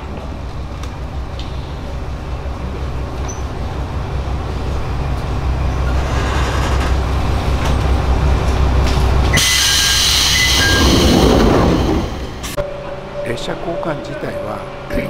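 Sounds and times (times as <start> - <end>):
high squealing tones: 9.3 - 14.6
loud air hiss: 9.4 - 12.6.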